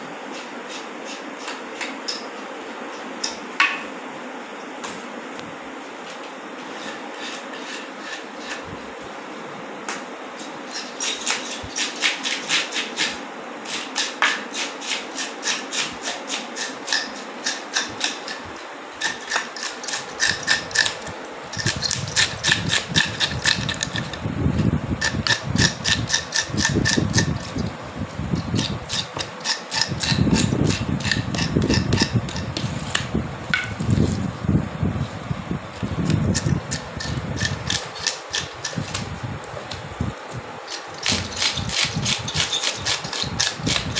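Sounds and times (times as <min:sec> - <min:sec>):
fish scaler scraping scales: 0:19.0 - 0:24.2, 0:25.0 - 0:27.7, 0:28.4 - 0:33.0, 0:36.3 - 0:39.0, 0:40.7 - 0:43.9.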